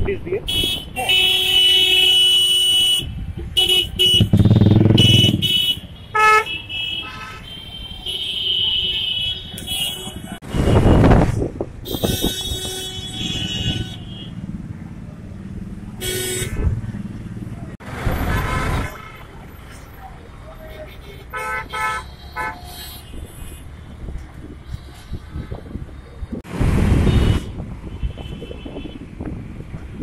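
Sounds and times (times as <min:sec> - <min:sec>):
engine and road noise: 0:00.0 - 0:30.0
vehicle horns honking: 0:00.4 - 0:11.2, 0:11.8 - 0:14.4, 0:16.0 - 0:16.7, 0:20.5 - 0:25.8, 0:27.0 - 0:29.1
loud rush of noise: 0:26.4 - 0:27.8.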